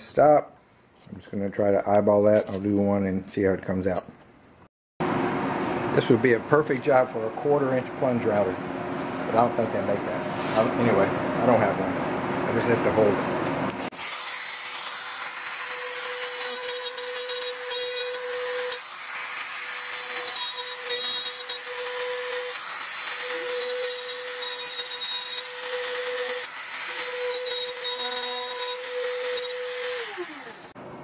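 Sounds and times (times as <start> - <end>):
router whining while cutting wood: 13.9 - 30.8.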